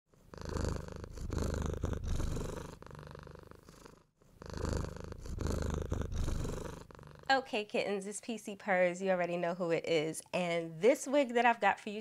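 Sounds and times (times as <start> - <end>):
cat purring: 0.1 - 7.3.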